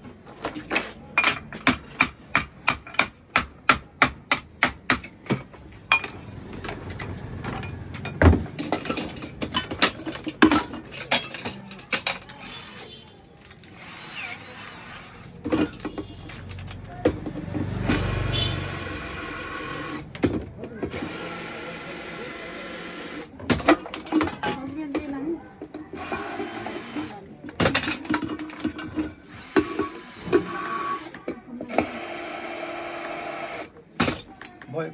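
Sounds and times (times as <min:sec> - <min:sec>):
tools clattering on cookware: 0:00.6 - 0:03.0, 0:07.5 - 0:12.4.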